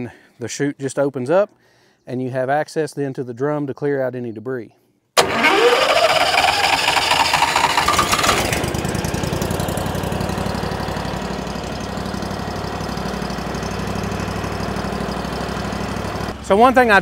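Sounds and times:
wood chipper engine revving and idling: 5.2 - 16.6.

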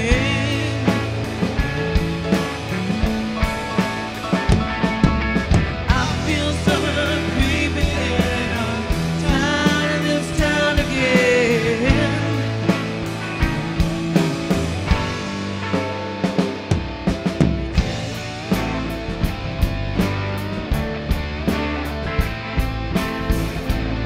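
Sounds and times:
man singing: 0.0 - 2.0, 5.8 - 14.4
drum beat: 0.0 - 24.0
live rock band playing: 0.0 - 24.0.

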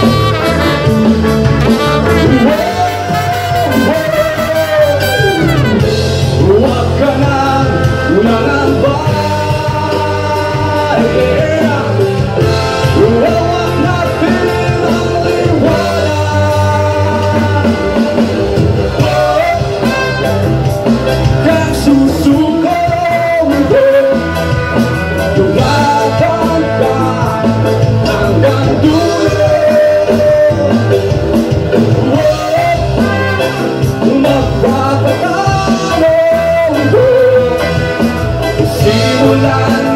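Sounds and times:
horn section: 0.0 - 39.9
lead singer singing: 0.0 - 39.9
reggae band playing: 0.0 - 39.9.

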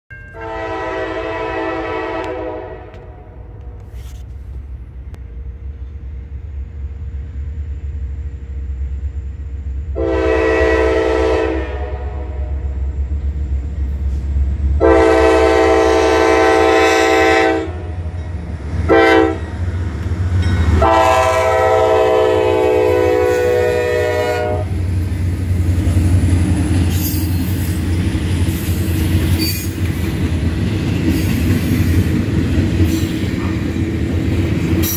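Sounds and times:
locomotive air horn: 0.3 - 4.2, 9.9 - 12.9, 14.8 - 18.0, 18.9 - 19.6, 20.8 - 24.8.

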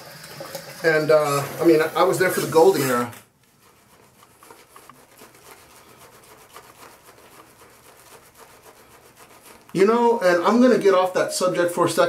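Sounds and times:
shaving brush scrubbing whiskers: 0.8 - 12.0.

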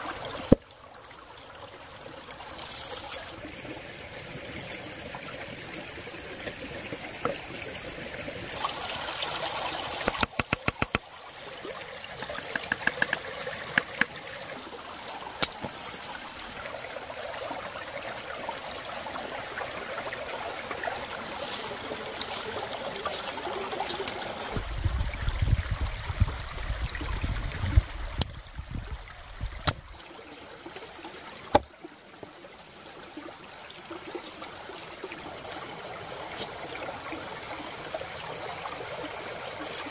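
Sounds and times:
stream trickling over stones: 0.0 - 39.9
cleaver knocking on wooden board: 10.0 - 11.0, 12.3 - 14.1
even clicks: 10.0 - 11.0.

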